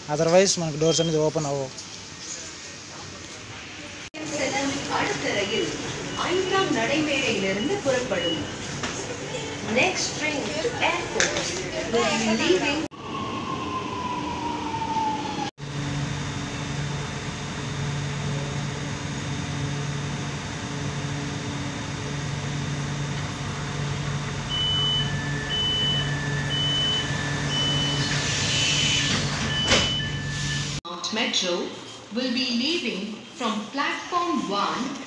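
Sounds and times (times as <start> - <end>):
train car humming: 3.6 - 30.8
alternating high-low warning beep: 7.2 - 8.7, 24.5 - 30.8.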